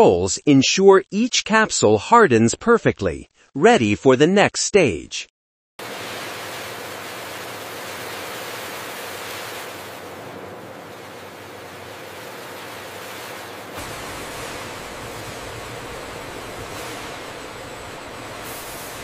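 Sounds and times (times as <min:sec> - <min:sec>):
capsules swirling in rotating bowl: 0:05.9 - 0:19.0.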